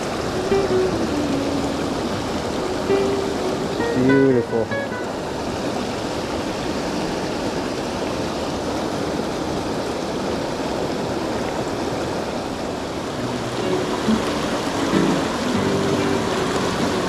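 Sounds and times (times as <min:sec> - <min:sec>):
faint music: 0:00.0 - 0:05.4, 0:13.2 - 0:17.0
stream flowing over stones: 0:00.0 - 0:17.0.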